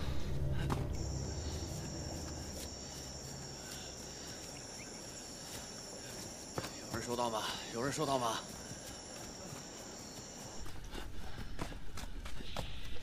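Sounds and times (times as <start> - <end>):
low music drone: 0.0 - 5.0
insects chirring: 0.0 - 10.9.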